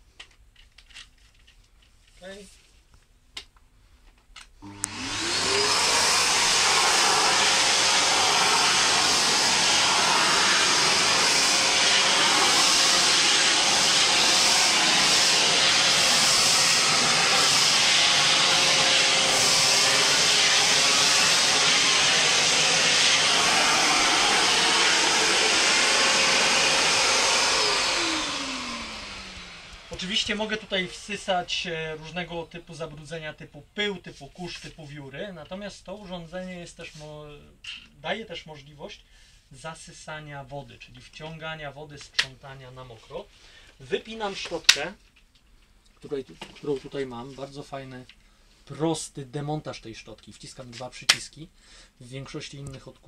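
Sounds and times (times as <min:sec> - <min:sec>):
vacuum cleaner motor running: 0:04.6 - 0:31.6
nozzle sucking up wood shavings: 0:04.8 - 0:30.6.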